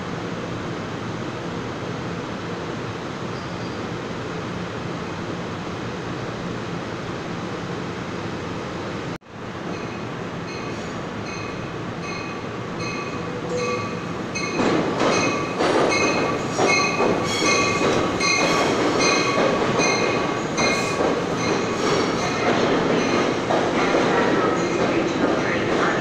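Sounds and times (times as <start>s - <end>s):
train wheels rumbling: 9.5s - 26.0s
train bell ringing: 9.7s - 23.3s.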